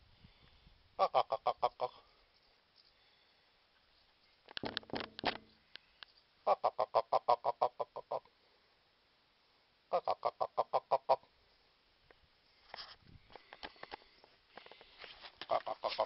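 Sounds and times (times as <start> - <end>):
goose honking: 15.5 - 16.0.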